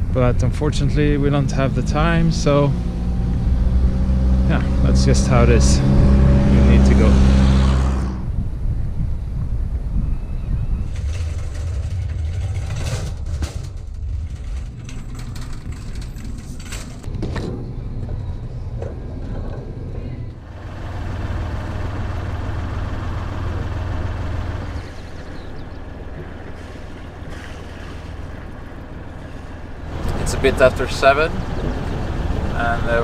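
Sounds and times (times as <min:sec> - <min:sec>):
shopping cart wheels rumbling: 0:10.8 - 0:17.1, 0:19.0 - 0:33.0.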